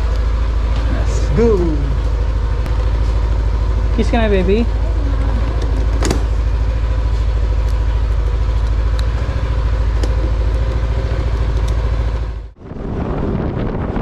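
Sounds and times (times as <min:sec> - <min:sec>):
scooter engine idling: 0:00.0 - 0:12.6.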